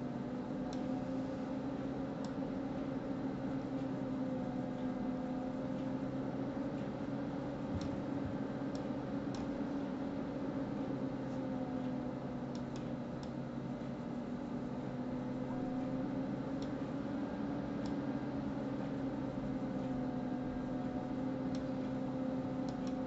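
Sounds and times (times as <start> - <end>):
low hum and hiss: 0.0 - 23.0
faint mouse clicks: 7.7 - 9.6, 22.6 - 23.0.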